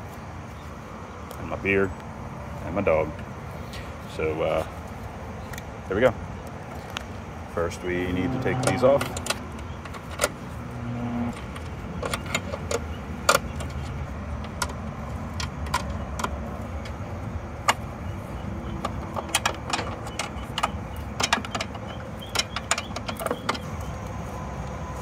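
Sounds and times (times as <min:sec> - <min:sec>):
steady low rumble: 0:00.0 - 0:19.2.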